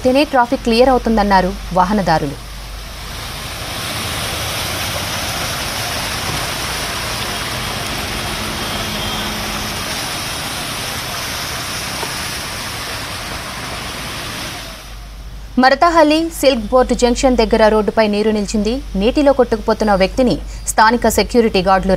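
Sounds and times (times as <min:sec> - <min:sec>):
vehicles splashing through water: 0:00.0 - 0:20.6
engines running: 0:00.0 - 0:21.9.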